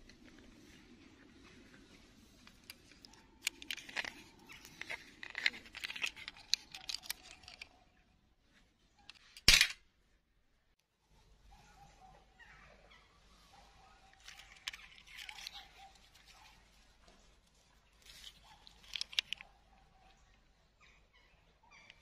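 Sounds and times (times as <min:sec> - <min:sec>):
rustling and crackling of twigs: 0:00.0 - 0:09.7, 0:13.4 - 0:20.4.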